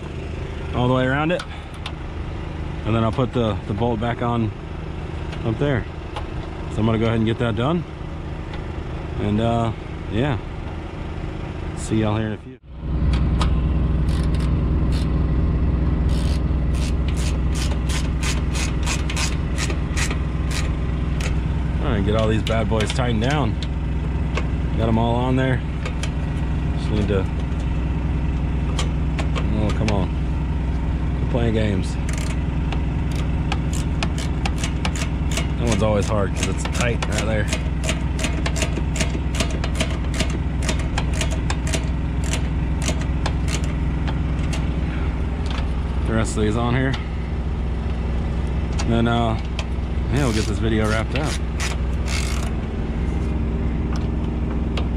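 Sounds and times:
engine idling hum: 0.0s - 54.9s
steady low rumble: 0.0s - 54.9s
ratchet wrench clicking: 16.1s - 21.4s, 32.1s - 32.4s, 33.1s - 43.8s, 50.1s - 52.6s
socket ratchet clicking: 50.2s - 52.5s.

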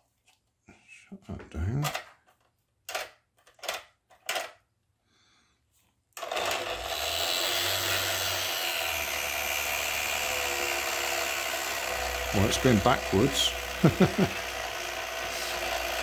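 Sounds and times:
small motor mechanical buzz: 6.2s - 16.0s.

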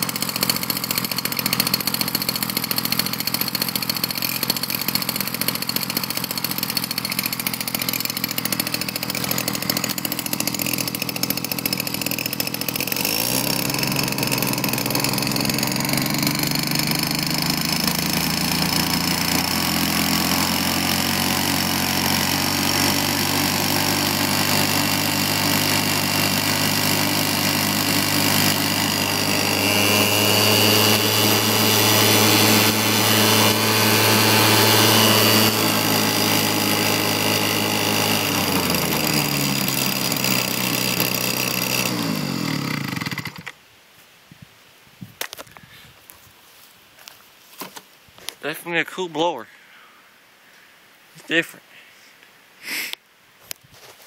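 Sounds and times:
leaf blower running: 0.0s - 43.6s
person speaking: 48.3s - 49.6s, 51.1s - 52.1s.

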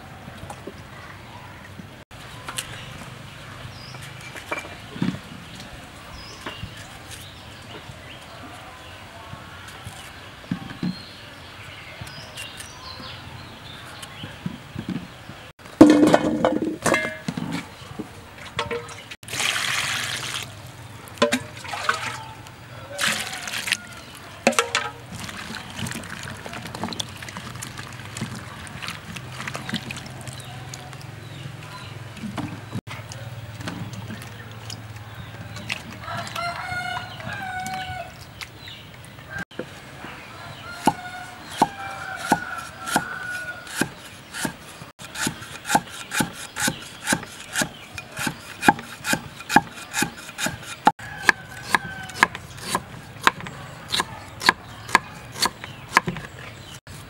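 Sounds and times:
chickens calling: 34.4s - 56.8s
knife chopping on wooden block: 40.8s - 56.3s.

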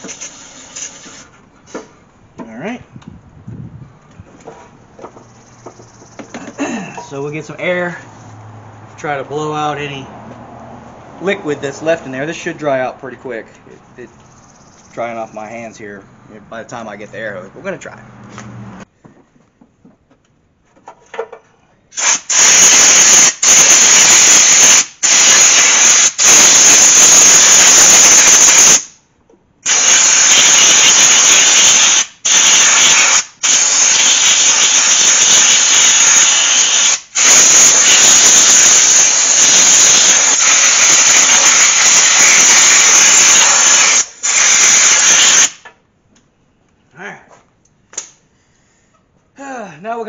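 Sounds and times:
compressed air hose hissing: 0.0s - 1.8s, 21.9s - 29.0s, 29.6s - 45.6s.

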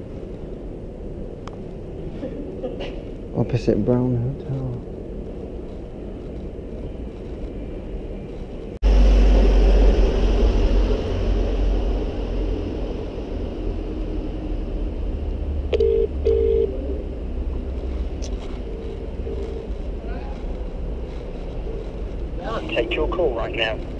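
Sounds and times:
low rumble of street noise: 0.0s - 23.9s
phone ringback tone: 15.7s - 16.7s.

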